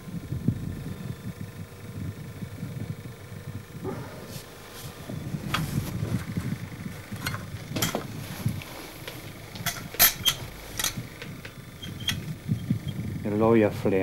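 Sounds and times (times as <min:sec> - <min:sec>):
low rumble of handling: 0:00.0 - 0:14.0
metallic clicks and knocks: 0:09.6 - 0:12.3.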